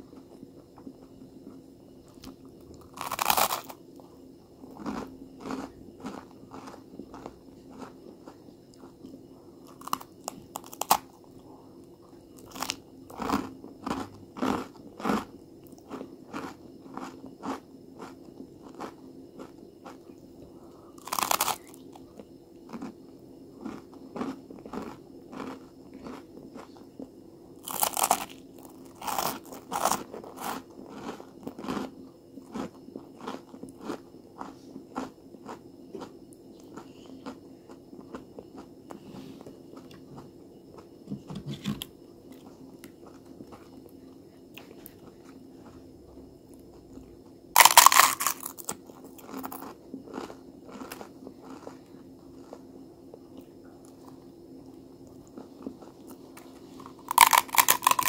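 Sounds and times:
crunching bites of toasted bread: 2.1 - 3.8, 4.7 - 8.9, 12.4 - 20.0, 21.0 - 21.9, 22.7 - 22.9, 23.6 - 26.7, 27.6 - 31.9, 32.5 - 35.6, 47.6 - 51.8, 55.6 - 58.0
tortilla chip crunch: 2.2 - 3.8, 4.7 - 8.4, 9.7 - 11.1, 21.0 - 21.8, 23.6 - 26.7, 27.6 - 31.9, 47.6 - 51.8, 56.8 - 58.0.

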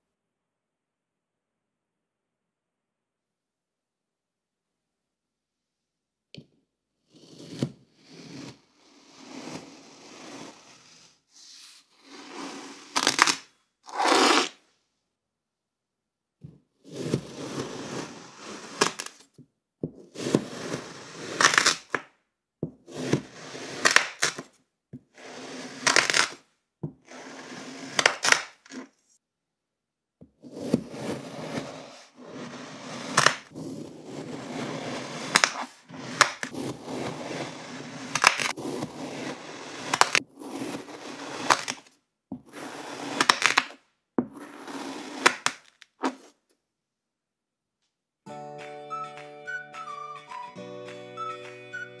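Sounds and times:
knife slicing through kinetic sand: 7.0 - 14.6, 16.8 - 19.2, 20.0 - 22.0, 22.7 - 24.5, 25.1 - 26.4, 27.0 - 28.9, 30.4 - 46.4.

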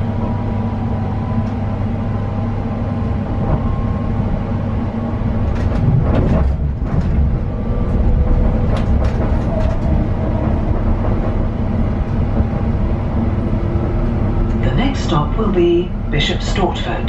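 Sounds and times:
train wheels rumbling on rails: 0.0 - 17.0
clicking and knocking: 7.9 - 11.4.

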